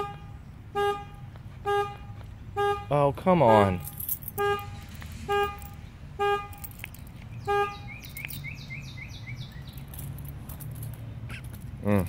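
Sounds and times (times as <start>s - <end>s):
truck horn honks: 0.0s - 8.2s.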